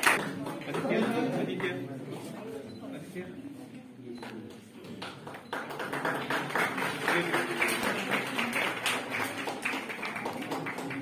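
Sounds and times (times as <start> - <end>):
audience applauding: 0.0 - 1.2, 5.2 - 11.0.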